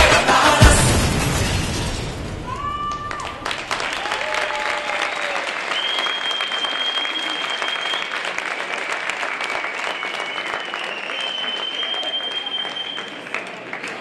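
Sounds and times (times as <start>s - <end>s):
dance music: 0.0s - 1.0s
crowd cheering and whooping: 2.4s - 8.8s
applause: 2.9s - 14.0s
long shrill whistle: 4.6s - 8.2s, 9.4s - 13.2s.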